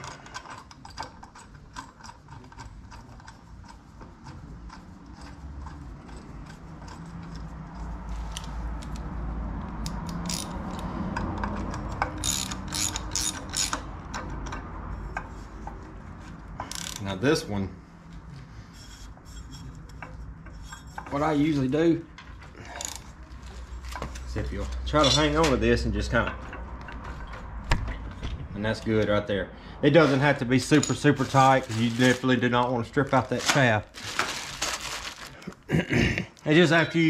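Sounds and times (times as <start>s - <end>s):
socket ratchet clicking: 9.7s - 14.7s.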